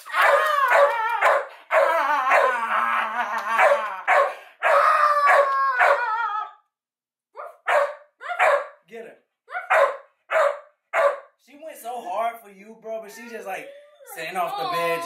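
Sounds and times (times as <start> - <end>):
large dog barking: 0.2 - 1.9, 3.6 - 6.0, 7.6 - 8.8, 9.6 - 11.3.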